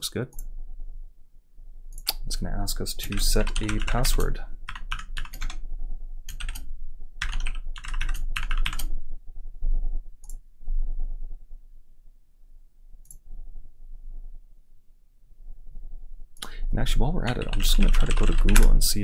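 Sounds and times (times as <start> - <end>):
computer keyboard typing: 2.9 - 5.6, 6.3 - 8.9, 17.2 - 18.8.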